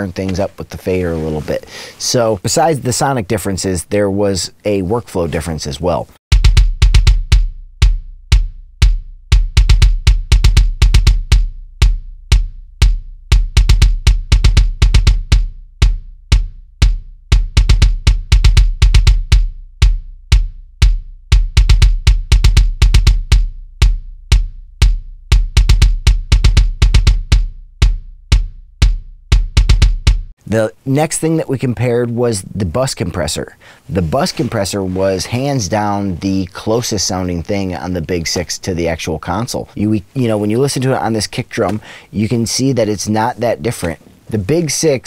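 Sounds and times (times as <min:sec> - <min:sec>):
drum kit kick and snare: 0:06.3 - 0:30.3.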